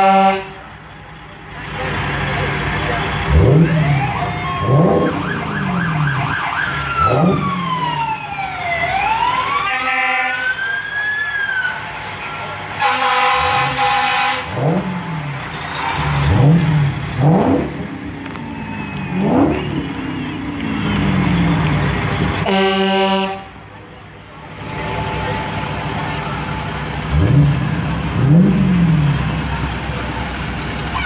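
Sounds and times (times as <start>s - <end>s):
vehicle horn: 0.0s - 0.7s, 9.6s - 10.5s, 12.8s - 14.6s, 22.4s - 23.6s
siren wailing: 3.2s - 11.9s, 17.2s - 22.8s.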